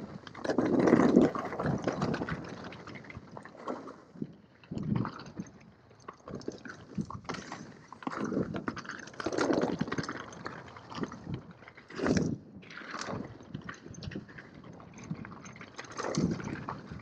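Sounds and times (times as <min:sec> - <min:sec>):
rushes of wind noise: 0:04.7 - 0:05.4
bike clicks and rattles: 0:06.7 - 0:14.4.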